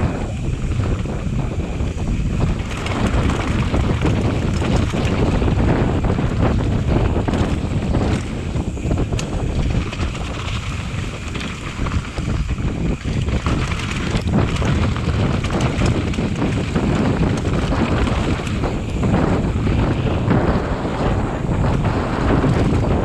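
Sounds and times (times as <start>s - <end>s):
bike knocks and rattles: 0.0s - 23.0s
wind rushing over microphone: 0.0s - 23.0s.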